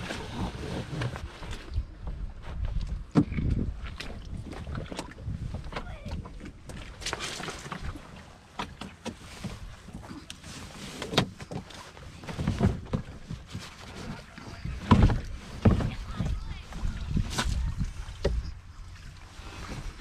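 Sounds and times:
knocks against canoe hull: 14.7 - 16.4.

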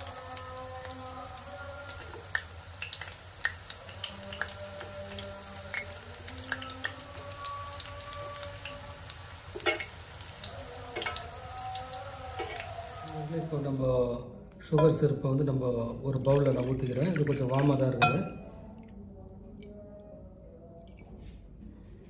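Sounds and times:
batter deep-frying in oil: 0.0 - 13.9.

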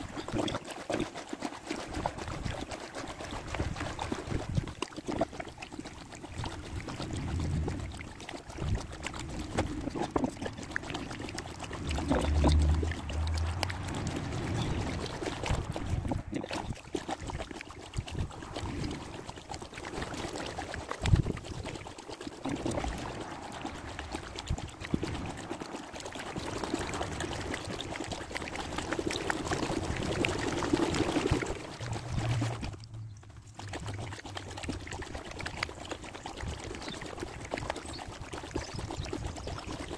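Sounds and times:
water dripping off paddle: 0.0 - 19.5
kayak paddle strokes in water: 0.0 - 39.9.

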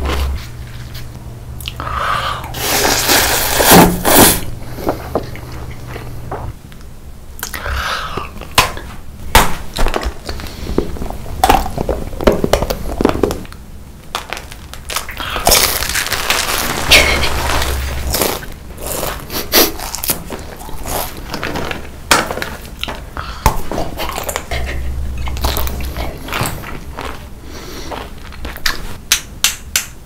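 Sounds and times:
person crunching food: 9.8 - 29.0.

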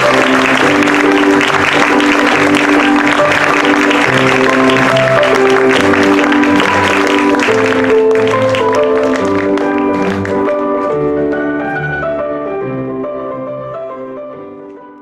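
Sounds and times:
audience applause: 0.0 - 11.2.

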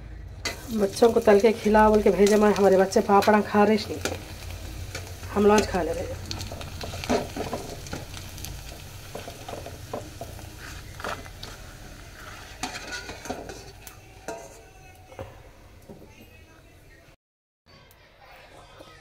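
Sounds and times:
steel spoon scraping a pan: 0.4 - 15.0
papads sizzling in oil: 0.4 - 17.1.

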